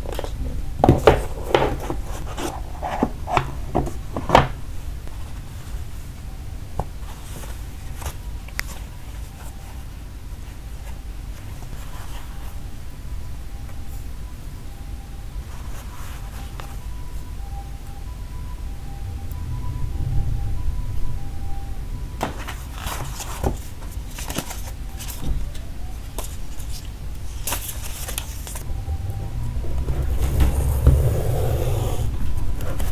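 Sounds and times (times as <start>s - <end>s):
low room rumble: 0.0s - 32.9s
soft rustling: 4.8s - 13.0s, 15.4s - 17.3s
low steady rumble: 16.8s - 22.7s, 28.6s - 32.9s
card and paper rustling: 22.2s - 28.7s.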